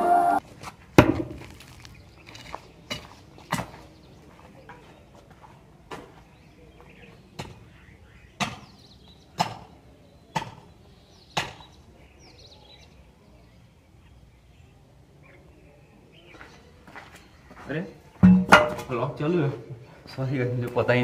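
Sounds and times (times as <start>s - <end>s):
sharp ringing knocks: 18.2s - 18.9s.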